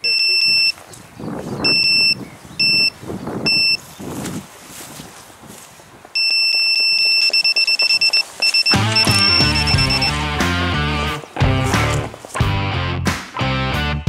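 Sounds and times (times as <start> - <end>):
bite alarm beeps: 0.0 - 0.8, 1.6 - 3.8, 6.2 - 10.4.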